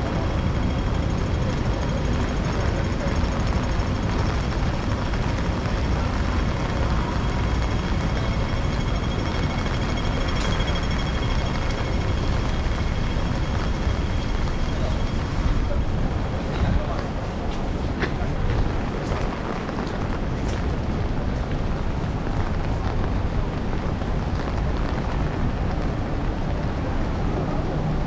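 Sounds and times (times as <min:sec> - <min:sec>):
traffic: 0:00.0 - 0:28.0
wind and rain hiss: 0:12.3 - 0:28.0.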